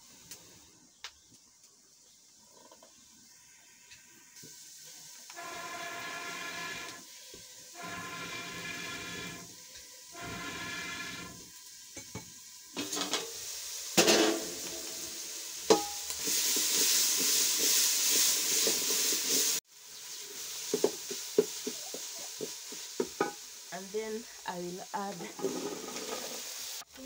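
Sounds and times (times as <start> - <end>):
stew sizzling in a pot: 0.0 - 27.0
wooden spoon scraping a pot: 5.3 - 7.0, 7.8 - 9.5, 10.2 - 11.5, 25.2 - 26.5
metal lid clattering: 12.8 - 13.3, 14.0 - 14.5.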